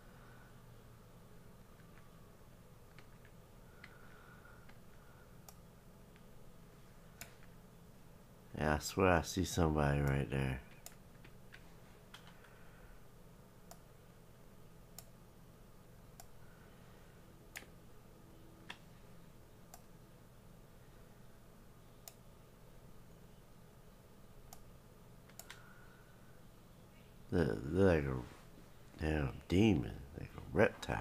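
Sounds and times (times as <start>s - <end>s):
low steady hum: 0.0s - 31.0s
faint computer mouse clicks: 22.0s - 22.2s, 25.3s - 25.7s.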